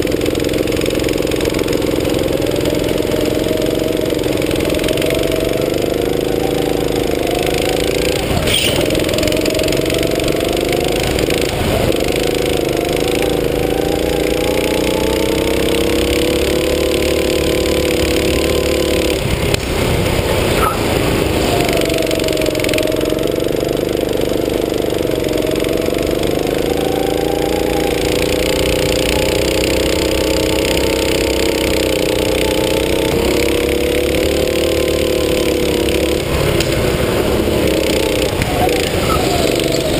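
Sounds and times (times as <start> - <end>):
go-kart engine running: 0.0 - 39.9.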